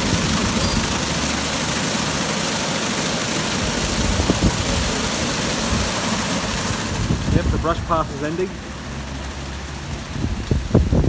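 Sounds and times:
car wash brushes rushing: 0:00.0 - 0:11.0.

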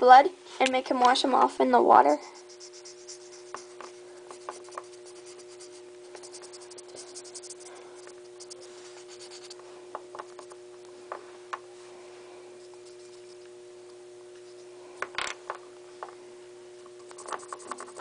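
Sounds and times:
steady low hum: 0:00.0 - 0:18.0
marker scribbling on plastic: 0:02.2 - 0:09.6, 0:12.7 - 0:13.4, 0:17.1 - 0:18.0.

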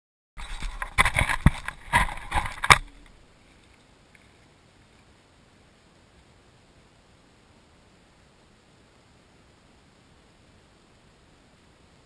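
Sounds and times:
camera handling knocks and scrapes: 0:00.4 - 0:02.9
faint hiss: 0:01.4 - 0:12.0.

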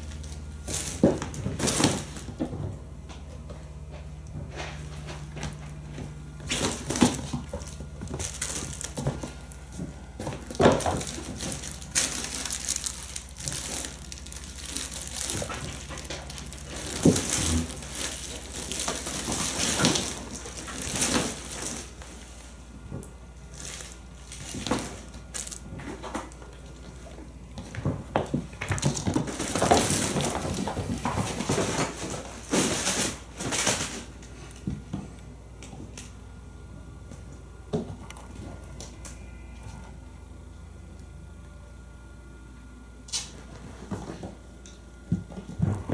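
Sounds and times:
kitten paws thumping and scrabbling: 0:00.0 - 0:36.0, 0:45.1 - 0:45.9
fabric tunnel rustling and crinkling: 0:06.4 - 0:09.7, 0:10.4 - 0:22.7.

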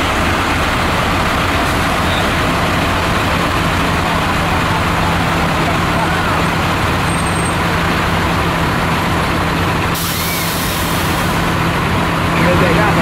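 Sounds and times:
diesel bus engine droning: 0:00.0 - 0:13.0
air brake hiss: 0:10.0 - 0:11.4.

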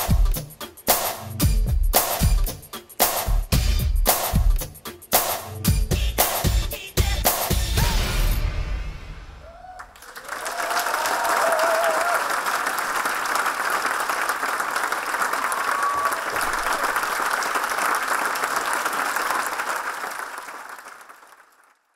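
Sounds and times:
audience applauding: 0:09.4 - 0:21.9.

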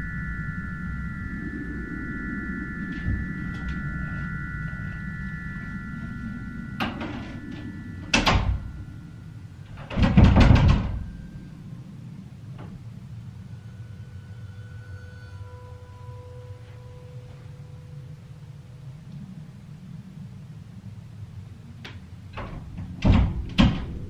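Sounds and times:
door thud and knock: 0:09.9 - 0:11.0, 0:22.8 - 0:23.9.

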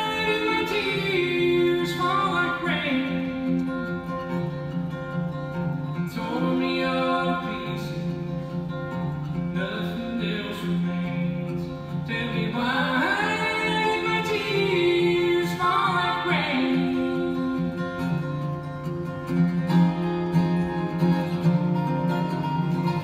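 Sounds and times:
person singing: 0:00.0 - 0:04.2, 0:06.0 - 0:08.6, 0:09.3 - 0:18.6
acoustic guitar: 0:00.0 - 0:23.0
mandolin: 0:00.0 - 0:23.0.

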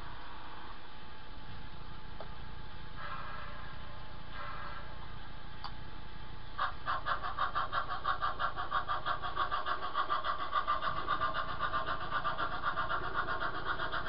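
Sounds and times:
model steam locomotive chuffing: 0:02.9 - 0:05.4, 0:06.0 - 0:14.0.

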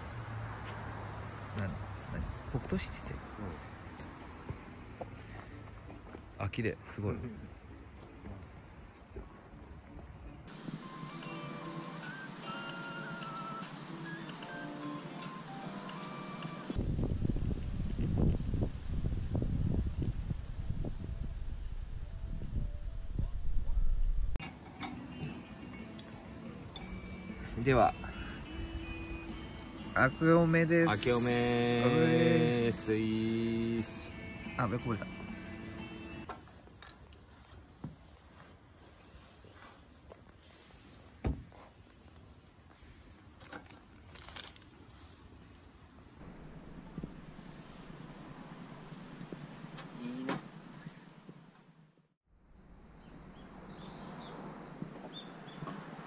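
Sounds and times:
wind buffeting microphone: 0:16.8 - 0:24.4
dull thump: 0:41.2 - 0:41.6.

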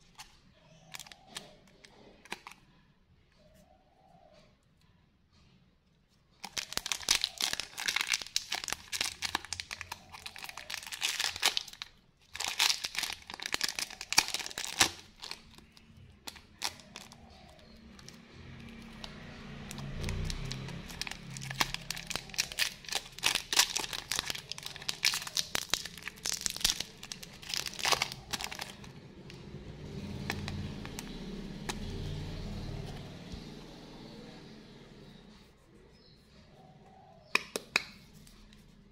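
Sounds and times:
plastic wrapper crinkling: 0:00.0 - 0:02.6, 0:06.4 - 0:29.5, 0:30.1 - 0:32.0.

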